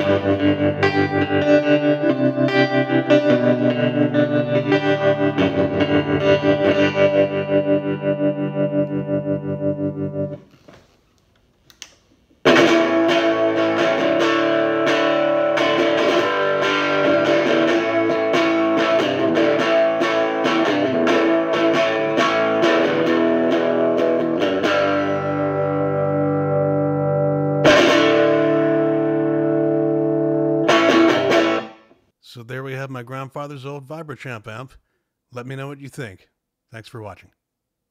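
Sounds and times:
electric guitar with tremolo: 0:00.0 - 0:10.7, 0:12.4 - 0:32.0.

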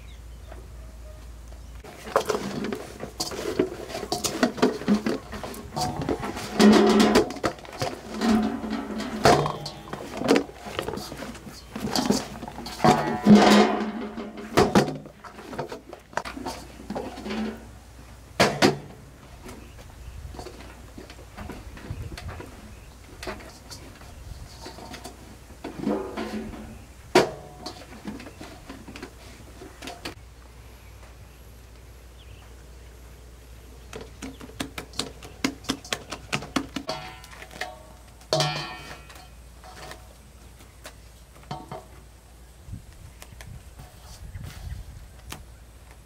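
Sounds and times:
pots and utensils clattering: 0:01.8 - 0:19.7, 0:20.3 - 0:30.2, 0:34.0 - 0:40.1, 0:41.4 - 0:41.9.

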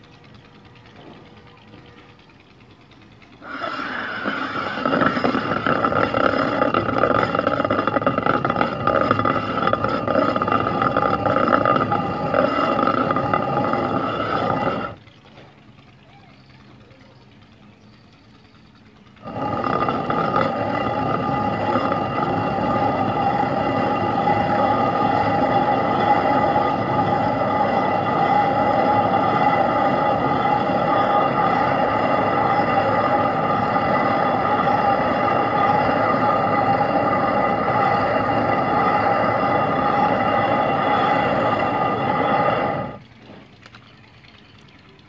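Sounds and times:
stone quern grinding: 0:03.4 - 0:15.0, 0:19.2 - 0:43.4.

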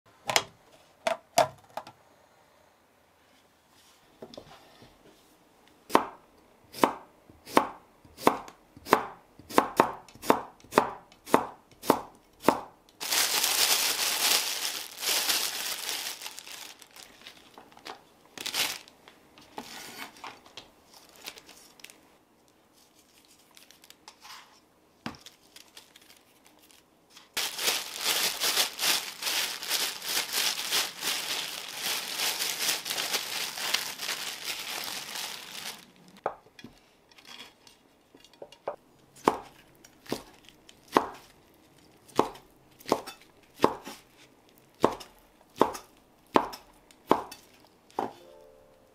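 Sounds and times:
plastic bag crinkling: 0:13.0 - 0:19.1, 0:20.9 - 0:22.0, 0:25.2 - 0:36.2.

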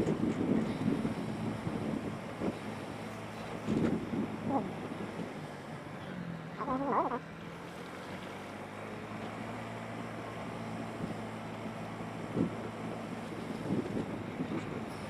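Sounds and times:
wind noise on microphone: 0:00.0 - 0:05.5, 0:12.2 - 0:15.0.

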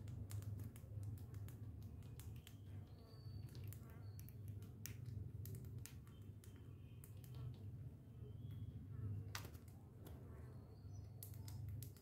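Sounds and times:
sharp clicks and taps: 0:00.0 - 0:02.7, 0:03.4 - 0:07.6, 0:11.2 - 0:12.0.

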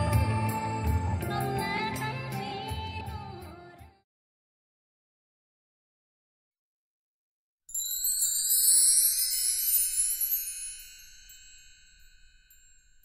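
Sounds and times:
sparkling bell-like chime: 0:07.7 - 0:13.0.

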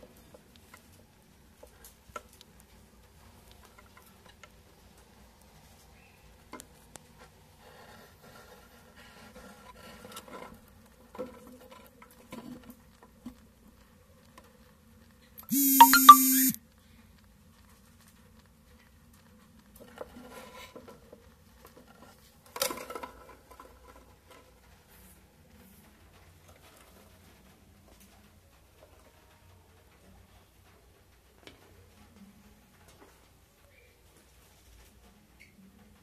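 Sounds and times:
loud steady buzzing tone: 0:15.4 - 0:16.6.

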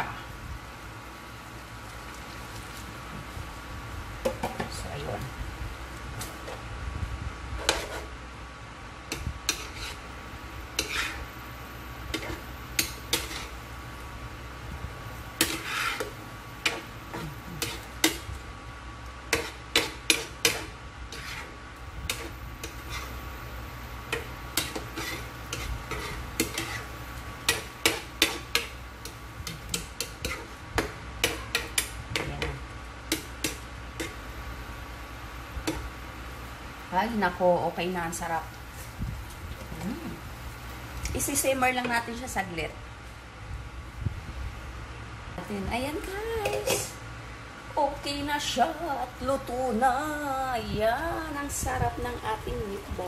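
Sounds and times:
metal spoon scraping frying pan: 0:07.6 - 0:08.1, 0:09.4 - 0:10.0, 0:10.7 - 0:11.4, 0:12.1 - 0:13.6, 0:15.4 - 0:18.3, 0:19.3 - 0:23.2, 0:24.1 - 0:30.6, 0:46.4 - 0:47.0.

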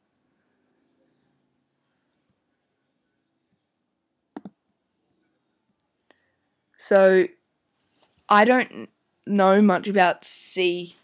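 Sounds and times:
faint high pulsing tone: 0:00.0 - 0:11.0
computer mouse click: 0:04.3 - 0:04.6.

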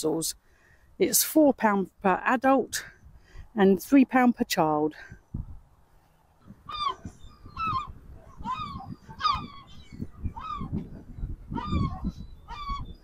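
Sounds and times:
waterfowl honking calls: 0:06.7 - 0:10.8, 0:11.5 - 0:13.0.

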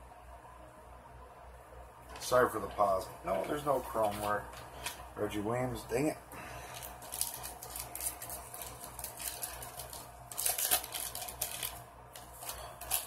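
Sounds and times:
foil wrapper crinkling and tearing: 0:06.6 - 0:13.0.

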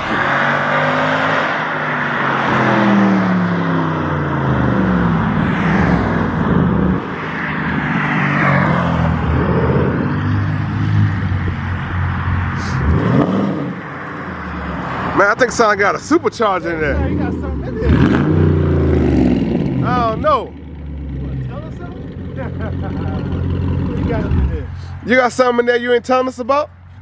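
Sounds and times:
car engine accelerating hard: 0:00.0 - 0:15.8, 0:16.4 - 0:25.0.

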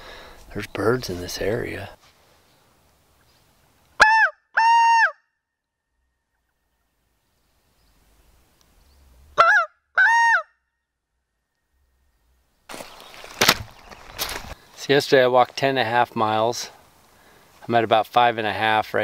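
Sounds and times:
reed call honking notes: 0:04.0 - 0:05.2.

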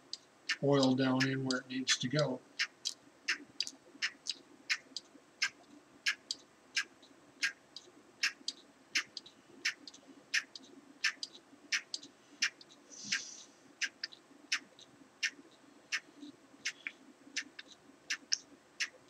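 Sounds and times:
brief hiss: 0:12.9 - 0:13.6.

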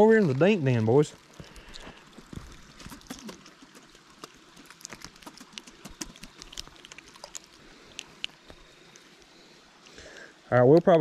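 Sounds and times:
fish splashing at water surface: 0:01.2 - 0:09.9.

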